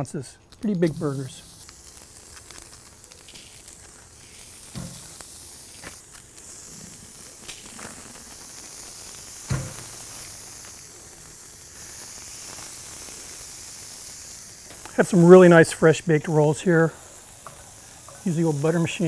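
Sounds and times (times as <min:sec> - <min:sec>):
food sizzling on grill: 0:00.6 - 0:19.0
patties thudding on grate: 0:04.7 - 0:05.2, 0:09.5 - 0:10.1.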